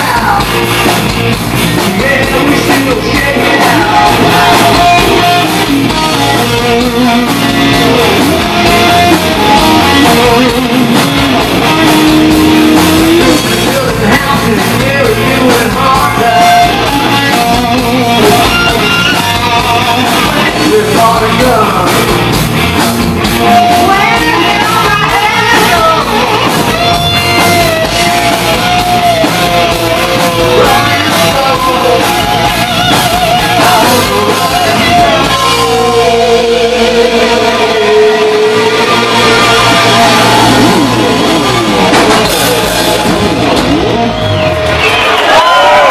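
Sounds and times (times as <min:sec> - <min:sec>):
man singing and shouting: 0:00.0 - 0:01.0, 0:01.6 - 0:22.3, 0:23.4 - 0:41.3
bass guitar: 0:00.0 - 0:45.9
drums: 0:00.0 - 0:45.9
electric guitar: 0:00.0 - 0:45.9.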